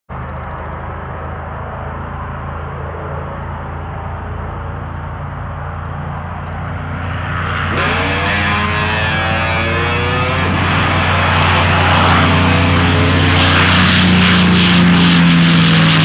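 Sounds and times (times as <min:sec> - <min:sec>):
propeller plane engine droning: 0:00.1 - 0:16.0
faint bird chirps: 0:00.2 - 0:01.3.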